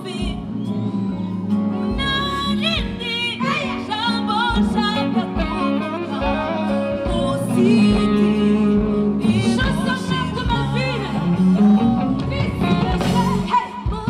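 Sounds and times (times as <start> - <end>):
woman singing: 0.0 - 0.8, 1.7 - 14.0
band accompaniment: 0.0 - 14.0.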